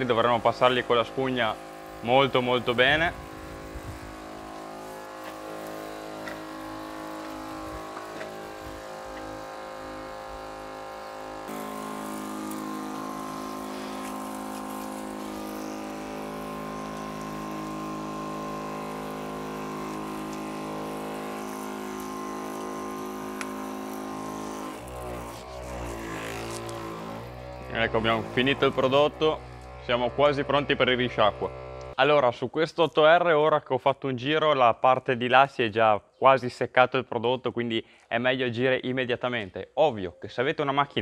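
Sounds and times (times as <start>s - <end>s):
humming drone: 0.0s - 32.0s
sprayer hissing mist: 0.0s - 32.0s.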